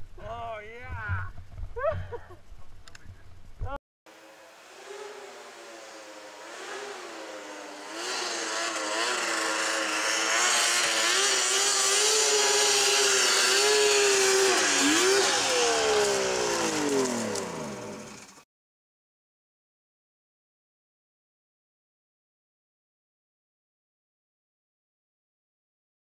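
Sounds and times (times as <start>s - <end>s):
engine revving at high speed: 4.1s - 18.4s.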